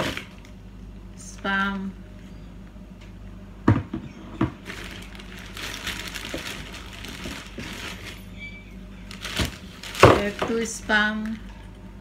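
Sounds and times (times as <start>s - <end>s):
plastic bag rustling: 4.6s - 11.6s.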